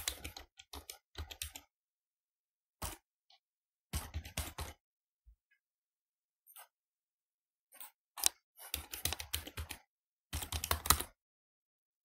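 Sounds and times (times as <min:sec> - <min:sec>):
keyboard typing: 0:00.0 - 0:01.7, 0:02.8 - 0:04.8, 0:07.7 - 0:11.2.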